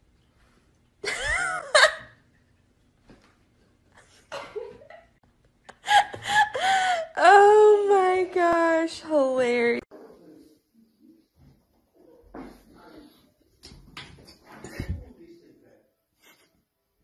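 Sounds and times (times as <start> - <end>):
woman laughing: 1.0 - 2.1, 5.7 - 7.2.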